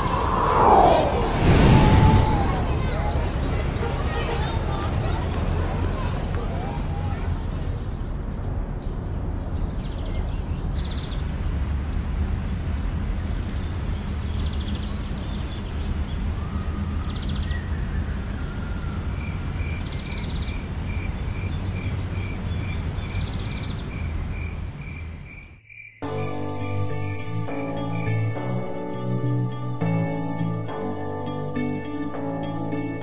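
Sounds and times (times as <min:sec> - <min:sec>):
steady rushing noise: 0:00.0 - 0:08.8
birds chirping and trilling: 0:07.0 - 0:25.4.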